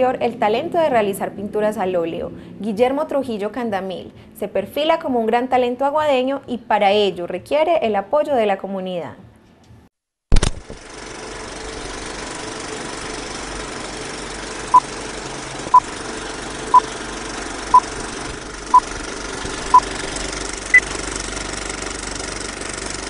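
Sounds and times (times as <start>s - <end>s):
film projector clatter: 10.4s - 23.0s.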